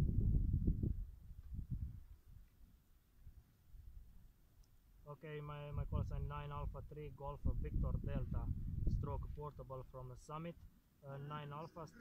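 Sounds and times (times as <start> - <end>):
wind rumble on microphone: 0.0 - 4.3, 5.6 - 10.7.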